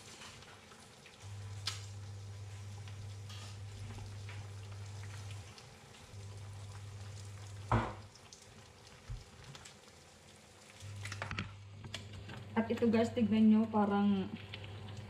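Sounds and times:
noodles boiling in a pot: 0:00.0 - 0:15.0
steady low hum: 0:01.2 - 0:08.1
sharp thump: 0:07.7 - 0:08.0
small knock: 0:07.7 - 0:08.0.

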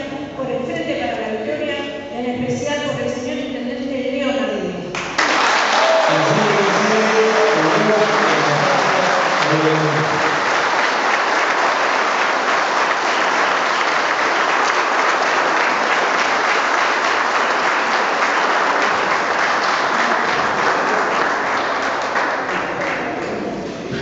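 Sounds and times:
audience applauding: 0:05.0 - 0:23.5.

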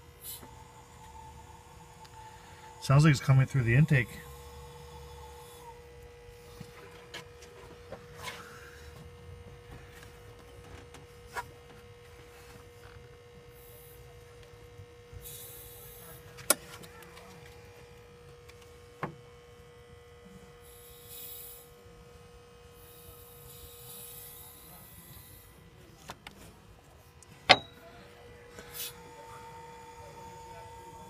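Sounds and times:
compressed air hissing: 0:00.2 - 0:01.0, 0:15.2 - 0:16.2, 0:20.6 - 0:21.8, 0:22.8 - 0:25.6, 0:28.6 - 0:29.0.

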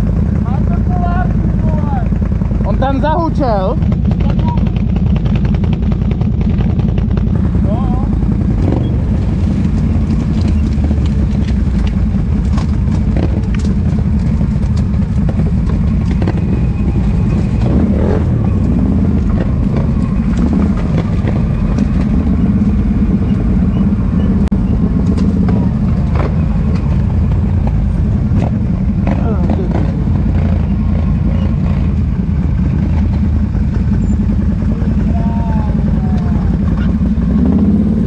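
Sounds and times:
quad bike engine running: 0:00.0 - 0:38.0
sharp knocks and clatters: 0:08.2 - 0:22.9, 0:24.4 - 0:32.0.

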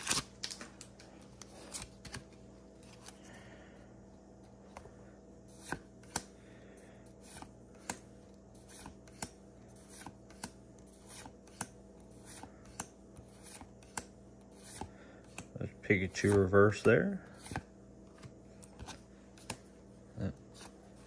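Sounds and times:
cards rubbing together: 0:07.1 - 0:15.5.

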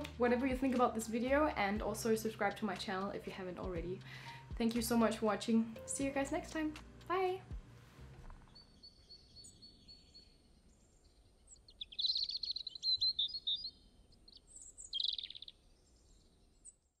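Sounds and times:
bird chirping and trilling: 0:08.4 - 0:16.8.

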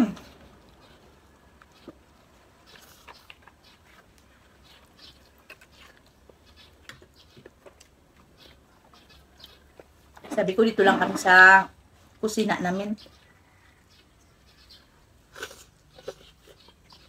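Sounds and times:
people chewing and smacking lips: 0:00.0 - 0:10.4, 0:13.0 - 0:17.0.

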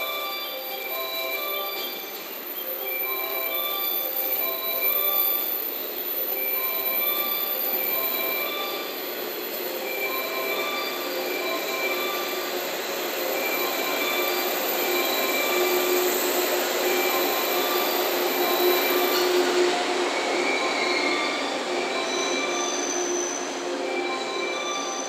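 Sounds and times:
train running noise: 0:00.0 - 0:25.0
train wheels squealing on rails: 0:00.0 - 0:25.0.

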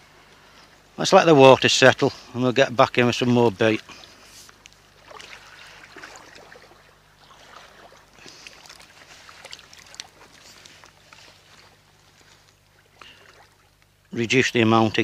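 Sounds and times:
low steady hum: 0:00.0 - 0:15.0
river water lapping at bank: 0:03.6 - 0:14.2
small water splashes: 0:04.8 - 0:14.1.

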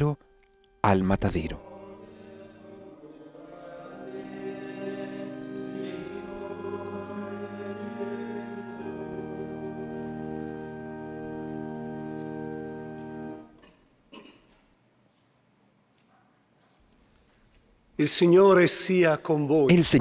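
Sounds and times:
choir singing sustained chords: 0:00.0 - 0:13.6.

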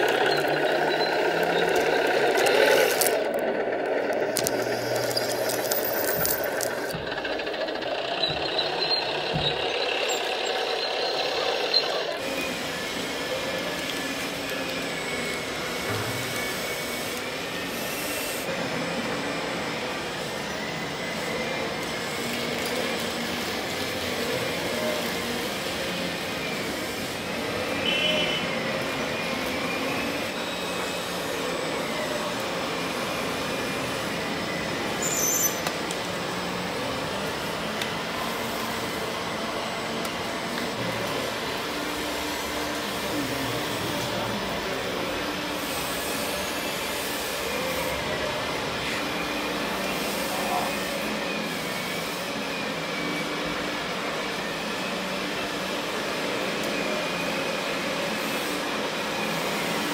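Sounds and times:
model road roller crunching grit: 0:00.0 - 0:18.6
small motors whining: 0:00.0 - 0:59.9.

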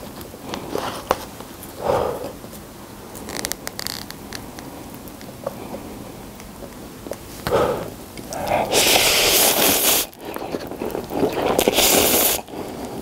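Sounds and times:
man slurping noodles: 0:07.5 - 0:12.6.

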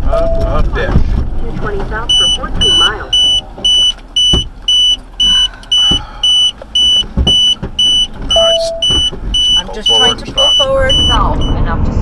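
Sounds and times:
dull low thumps: 0:00.0 - 0:11.8
electronic warning beeper: 0:02.1 - 0:11.6.

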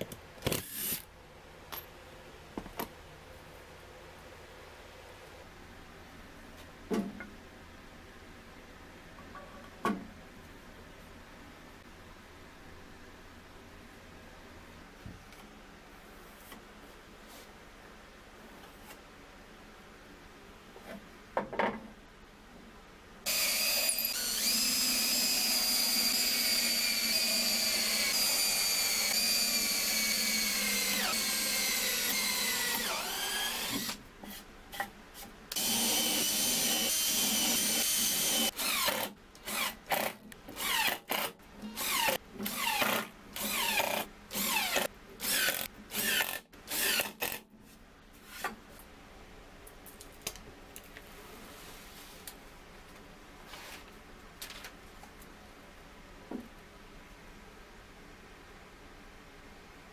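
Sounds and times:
cordless drill whining: 0:23.3 - 0:34.0, 0:35.5 - 0:41.0
drill trigger bursts: 0:23.3 - 0:34.0, 0:35.5 - 0:47.4.

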